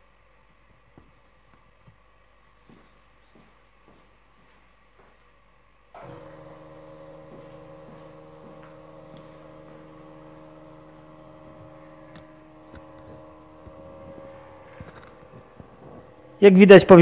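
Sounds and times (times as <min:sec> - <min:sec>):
motorised carriage drive humming: 0:06.0 - 0:16.4.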